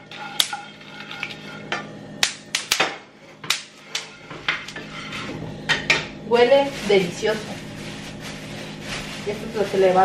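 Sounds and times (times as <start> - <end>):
wooden spoon against a pan: 0.0 - 1.9.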